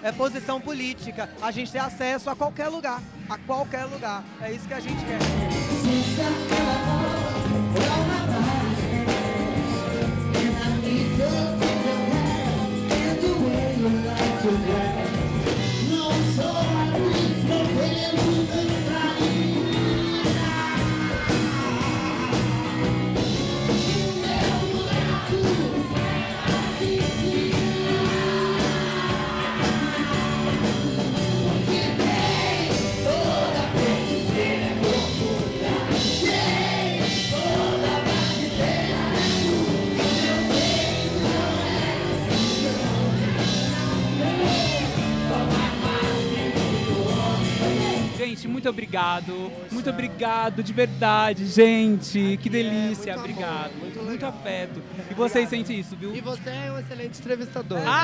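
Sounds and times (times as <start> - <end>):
steady drum beat: 3.6 - 48.3
lead singer's voice: 3.7 - 53.7
electric guitar: 5.0 - 48.2.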